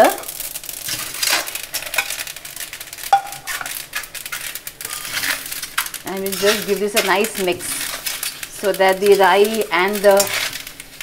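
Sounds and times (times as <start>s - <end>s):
seeds crackling and popping in pan: 0.0s - 11.0s
metal skimmer scraping a pan: 3.1s - 11.0s.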